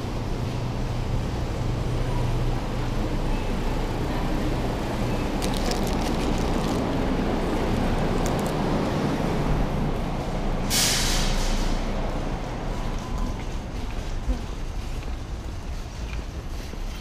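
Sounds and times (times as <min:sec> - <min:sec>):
low rumble of store entrance: 0:00.0 - 0:17.0
paper wrapper crinkling: 0:05.3 - 0:08.7
air rushing through doors: 0:06.8 - 0:12.7.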